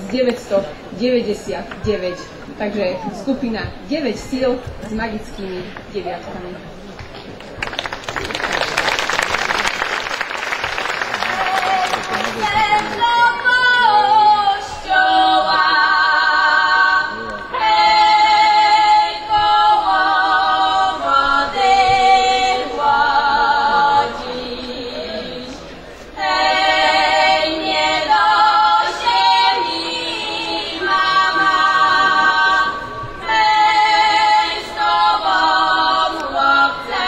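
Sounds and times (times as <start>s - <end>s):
applause: 7.3s - 13.0s
women singing a cappella: 11.3s - 37.0s.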